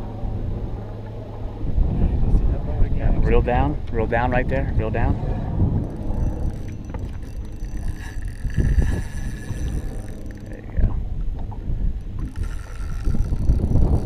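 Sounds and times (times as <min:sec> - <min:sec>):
wind rumbling on microphone: 0:00.0 - 0:14.0
faint thin whine: 0:05.8 - 0:14.0.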